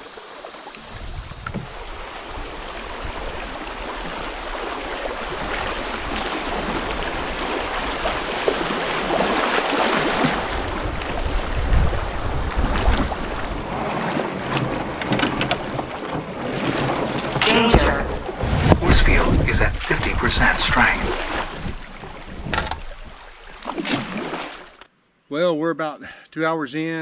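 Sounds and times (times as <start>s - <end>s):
river water rushing and splashing: 0.0s - 24.8s
low rumble: 17.5s - 22.2s.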